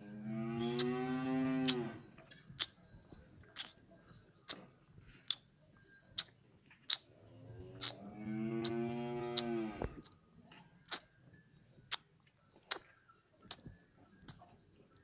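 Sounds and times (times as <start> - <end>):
cow mooing: 0.1 - 2.1, 7.5 - 10.0.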